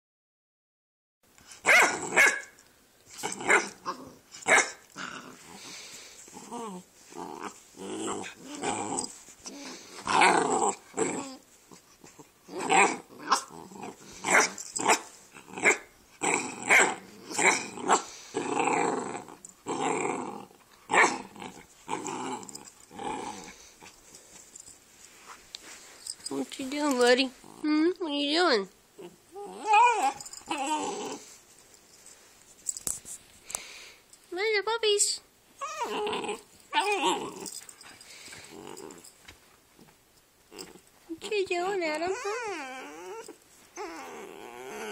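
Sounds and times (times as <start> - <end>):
puppies growling: 3.1 - 24.3, 28.9 - 31.4, 35.6 - 39.2, 40.5 - 40.9, 41.9 - 44.9.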